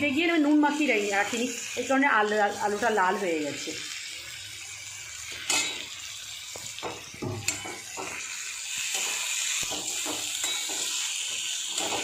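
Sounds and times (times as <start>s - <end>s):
potatoes sizzling in hot oil: 0.0s - 12.0s
metal spatula scraping a wok: 5.3s - 6.0s, 7.0s - 12.0s.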